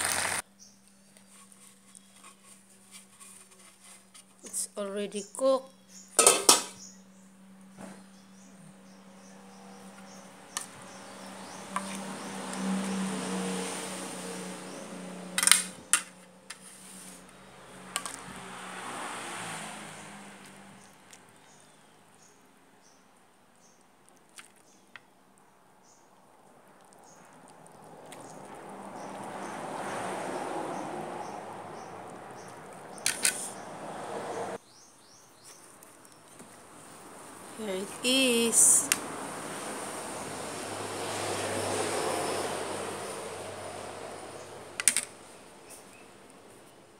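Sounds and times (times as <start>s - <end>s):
metal utensil clinking on pan: 6.2s - 6.8s.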